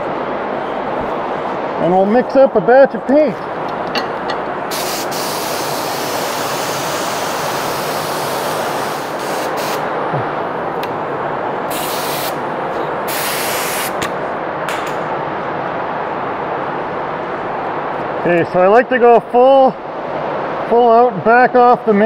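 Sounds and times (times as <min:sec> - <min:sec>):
exhaust fan rushing: 0:00.0 - 0:21.7
spray gun air hiss: 0:04.7 - 0:09.9, 0:11.7 - 0:12.4, 0:13.0 - 0:14.0.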